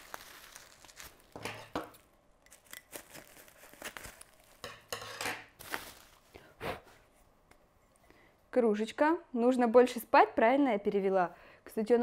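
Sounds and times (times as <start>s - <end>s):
bubble wrap crinkling and tearing: 0.0s - 4.6s, 5.5s - 6.4s.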